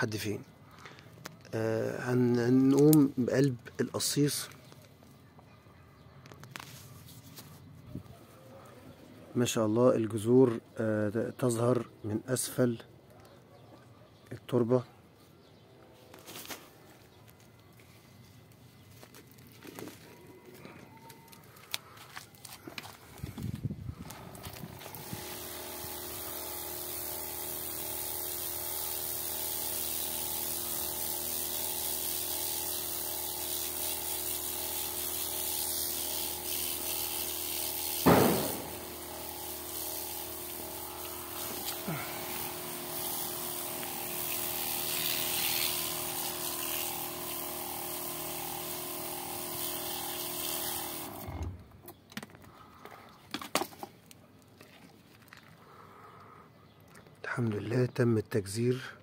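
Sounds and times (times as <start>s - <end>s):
hose nozzle spraying water: 24.3s - 51.3s
sharp knock: 38.0s - 38.8s.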